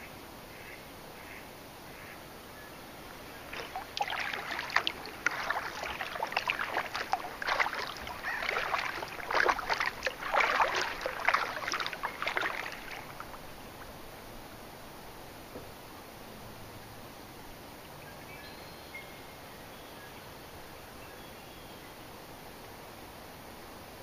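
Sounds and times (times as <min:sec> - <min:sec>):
kayak paddle splashing: 0:02.9 - 0:14.0.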